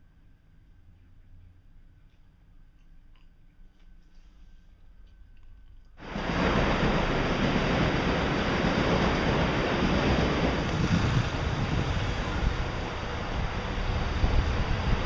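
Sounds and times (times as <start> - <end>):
night street noise: 0.0 - 15.0
wind rumble on microphone: 6.0 - 15.0.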